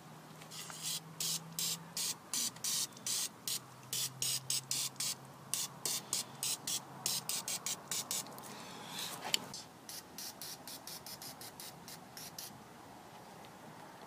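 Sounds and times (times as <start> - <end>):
aerosol spray hissing bursts: 0.8 - 8.2.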